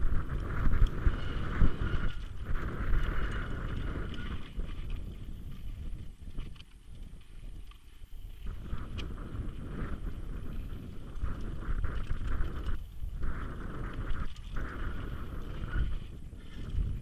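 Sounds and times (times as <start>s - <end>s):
bike rattling: 0.0s - 17.0s
wind rumbling on microphone: 0.0s - 17.0s.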